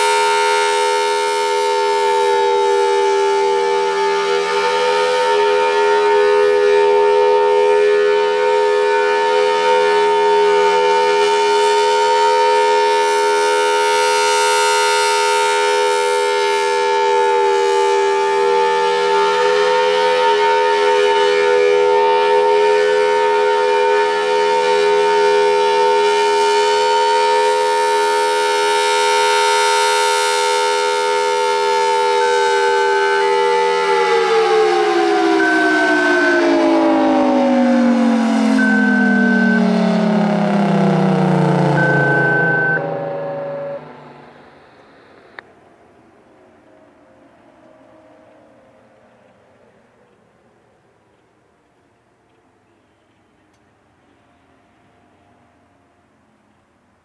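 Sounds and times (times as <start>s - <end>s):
warning siren steady tone: 0.0s - 45.1s.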